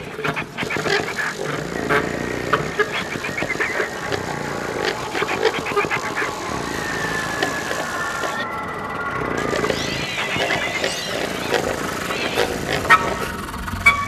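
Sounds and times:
scattered clicks and rasping: 0.0 - 13.9.

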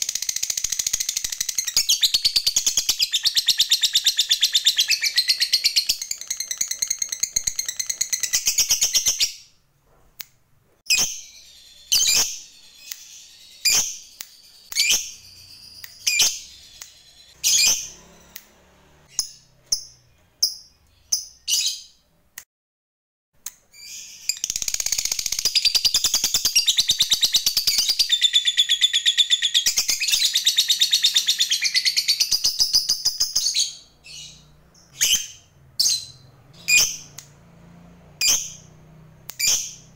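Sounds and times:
lovebird sharp chirps: 0.0 - 9.5, 10.9 - 22.0, 23.7 - 37.3, 38.2 - 39.9.

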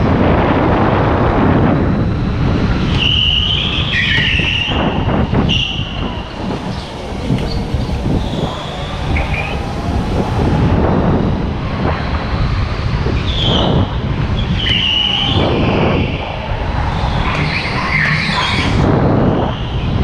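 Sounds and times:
go-kart engine rumble: 0.0 - 20.0
tyre squeals: 2.9 - 9.6, 14.4 - 18.8.

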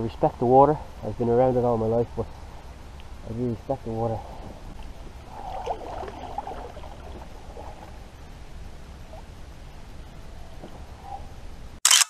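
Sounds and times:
steady low rumble: 0.0 - 11.8
kayak paddle dipping and dripping: 4.8 - 8.1
water lapping at plastic hull: 4.8 - 8.1.

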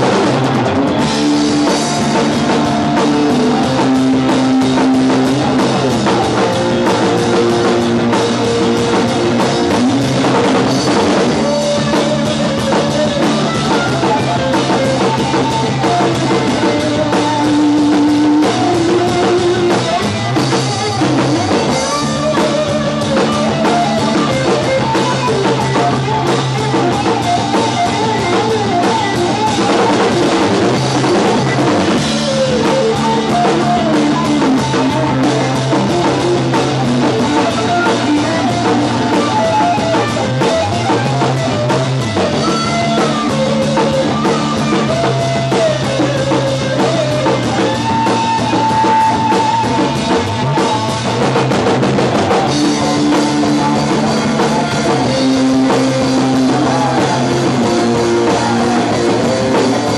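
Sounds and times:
drum kit: 0.0 - 59.9
electric bass: 0.0 - 59.9
electric guitar lead: 0.0 - 59.9.

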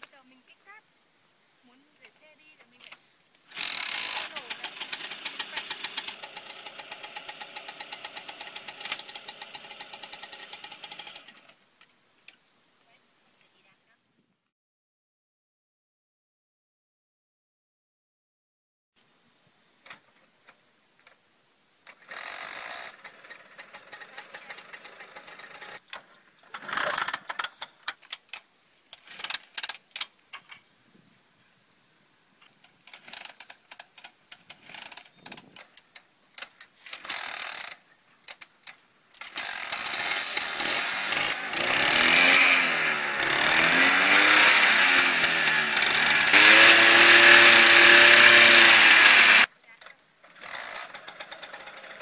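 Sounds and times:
scooter kickstart attempts: 2.7 - 11.6, 21.8 - 30.6, 32.6 - 52.0
scooter engine revving: 3.5 - 11.5, 22.0 - 25.8, 26.5 - 27.5, 36.9 - 37.8, 39.3 - 49.5, 50.3 - 52.0.

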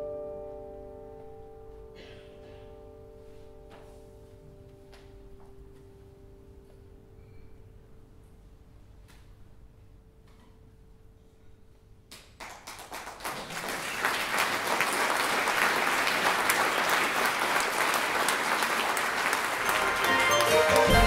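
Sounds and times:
audience applauding: 12.4 - 21.0.

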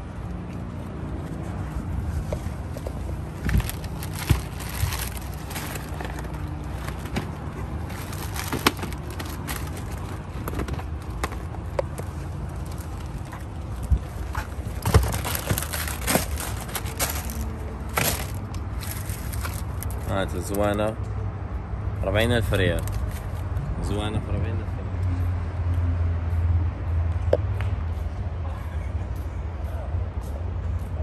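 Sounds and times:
steady low rumble: 0.0 - 20.4
plastic packaging crinkling: 3.3 - 10.2, 14.6 - 20.1.

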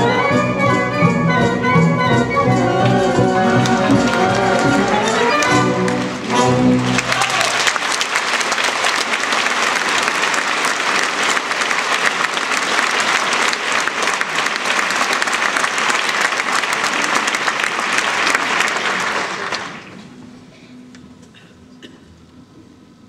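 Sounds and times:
audience applauding: 3.6 - 20.0.

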